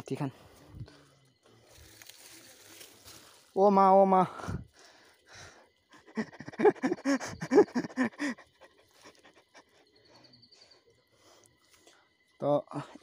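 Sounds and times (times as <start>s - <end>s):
footsteps on dirt trail: 1.6s - 4.5s
person panting hard: 4.3s - 11.5s.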